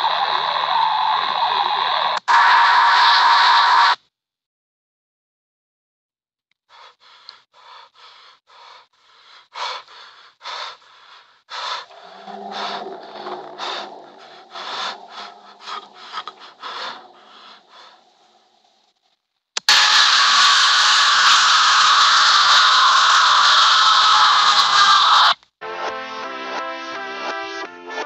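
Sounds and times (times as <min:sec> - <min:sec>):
rapid rasping breaths: 0:06.6 - 0:19.0
low hum: 0:11.9 - 0:18.8.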